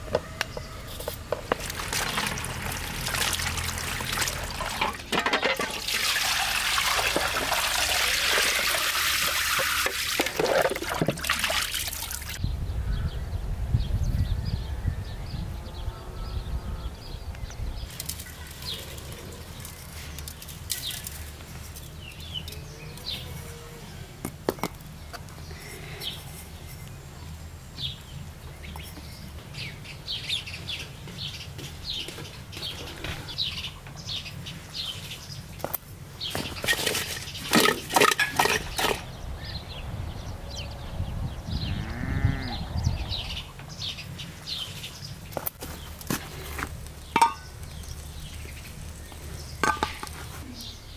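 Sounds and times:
small birds chirping: 24.8 - 37.6, 38.6 - 50.9
farm animal bleating: 41.6 - 42.7.

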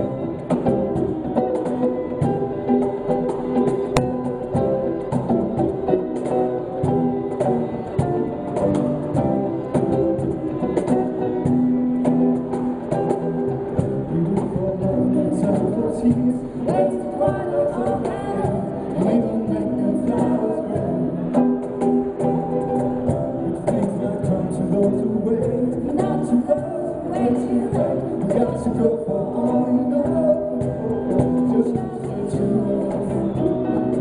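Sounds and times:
acoustic guitar: 0.0 - 34.0
cajon beat: 0.0 - 34.0
violin: 0.0 - 34.0
person singing: 14.1 - 21.6, 23.4 - 34.0.

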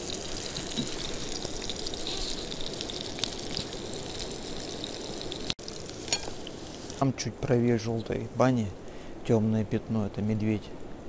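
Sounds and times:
fish sizzling in a pan: 0.0 - 7.0
faint crackles: 0.0 - 8.2.

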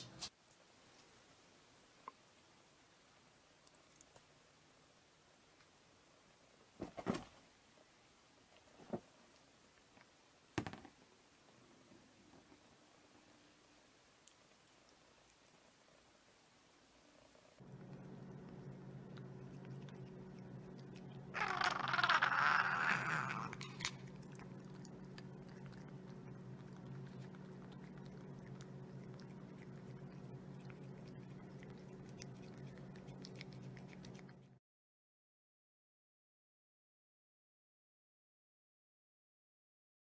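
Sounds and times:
steady low hum: 11.1 - 34.6
cat licking from a spoon: 17.2 - 34.6.

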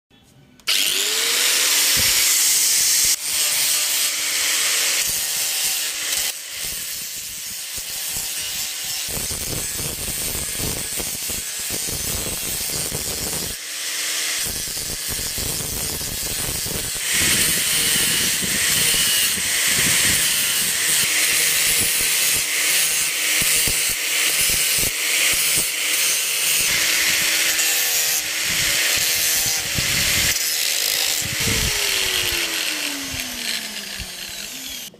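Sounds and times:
electric motor whine: 0.6 - 2.8, 26.7 - 34.9
sanding disc grinding coconut shell: 15.2 - 34.9.

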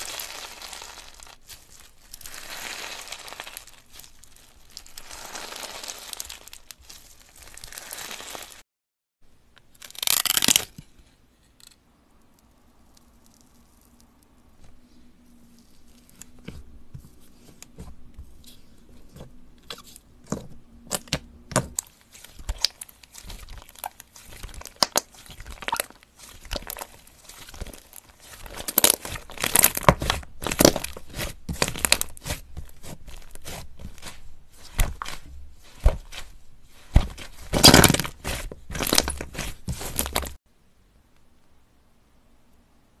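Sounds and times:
crunchy crackling of beaded slime: 0.0 - 8.6, 9.7 - 10.7, 12.3 - 14.6, 20.9 - 40.4.

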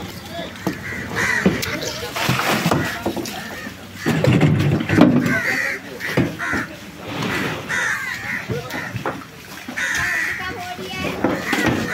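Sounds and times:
market bustle: 0.0 - 11.9
crows cawing: 0.6 - 1.9, 2.8 - 4.3, 5.2 - 6.8, 7.7 - 9.1, 9.7 - 10.6, 11.3 - 11.9.

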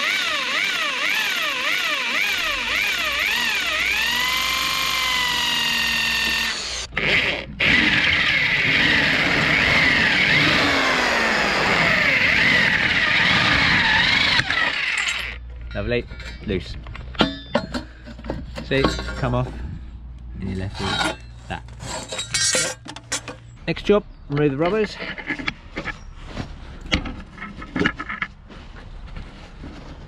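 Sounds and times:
electric drill whining: 0.0 - 15.4.

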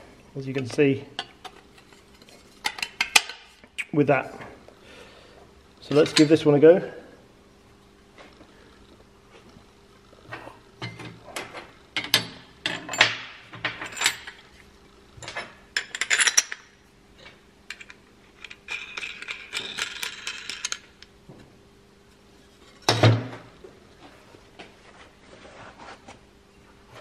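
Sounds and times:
metal parts clinking: 15.2 - 16.7, 17.7 - 20.9.

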